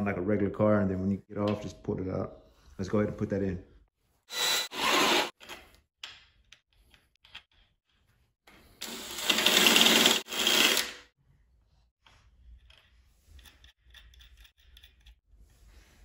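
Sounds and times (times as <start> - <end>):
cordless drill drilling metal: 4.3 - 5.3, 8.8 - 11.1.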